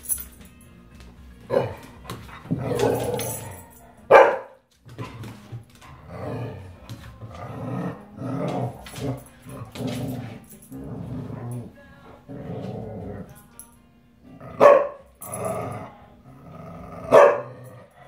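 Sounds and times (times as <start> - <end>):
dogs growling: 1.4 - 4.2, 4.8 - 13.5, 14.2 - 18.0
dogs barking: 1.4 - 4.7, 14.5 - 15.3, 17.0 - 18.0.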